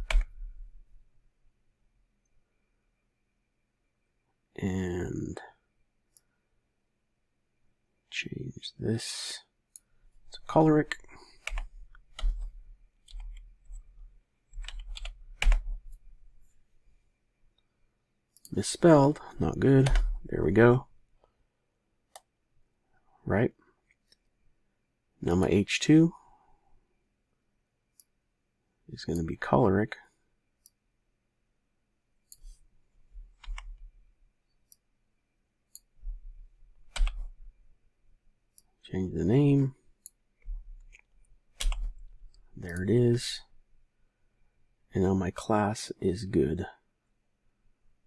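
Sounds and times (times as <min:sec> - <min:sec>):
computer mouse and keyboard clicks: 0:00.0 - 0:00.4, 0:09.7 - 0:13.9, 0:14.5 - 0:16.0, 0:33.3 - 0:33.8, 0:36.8 - 0:37.4, 0:40.0 - 0:42.9
typing on computer keyboard: 0:00.0 - 0:00.4, 0:11.3 - 0:13.5, 0:14.5 - 0:15.8, 0:19.8 - 0:20.2, 0:36.9 - 0:37.3, 0:41.6 - 0:42.0.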